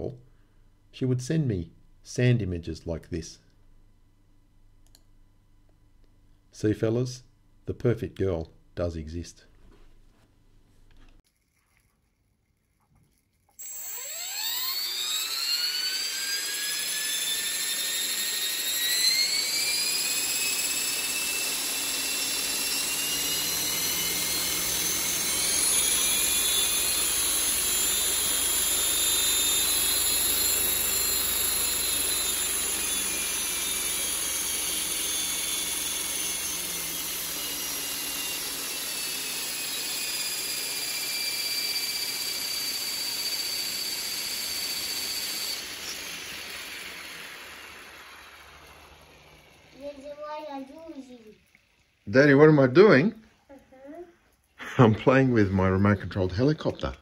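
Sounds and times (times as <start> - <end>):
model helicopter motor whine: 13.1 - 51.5.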